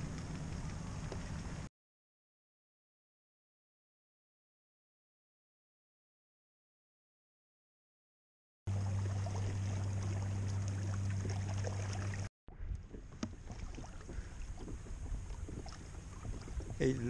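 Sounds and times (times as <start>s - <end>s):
steady low hum: 0.0s - 1.7s, 8.7s - 17.0s
wind and water around a kayak: 0.0s - 1.7s, 8.7s - 17.0s.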